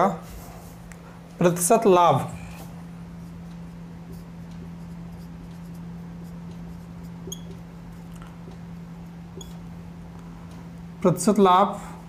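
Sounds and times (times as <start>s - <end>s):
steady low hum: 0.0s - 12.0s
marker writing on whiteboard: 4.0s - 7.6s
marker tip squeak: 7.2s - 7.6s, 9.4s - 9.6s.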